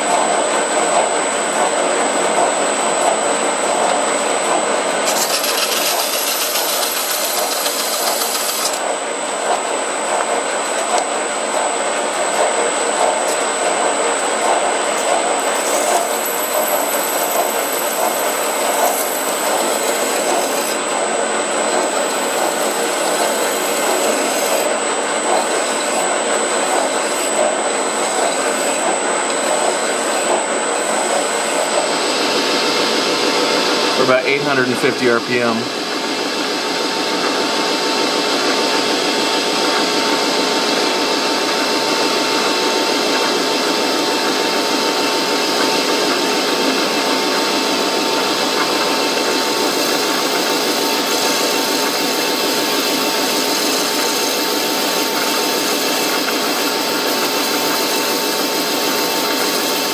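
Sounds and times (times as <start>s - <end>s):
metal lathe whining: 4.8s - 8.8s, 15.0s - 32.4s
hissing of brass being cut: 5.1s - 8.8s.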